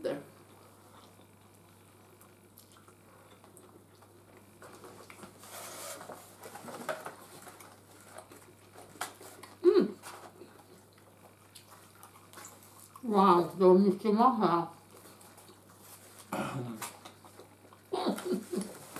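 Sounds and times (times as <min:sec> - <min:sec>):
chewing: 0:00.4 - 0:05.3, 0:10.4 - 0:13.1, 0:14.8 - 0:17.9.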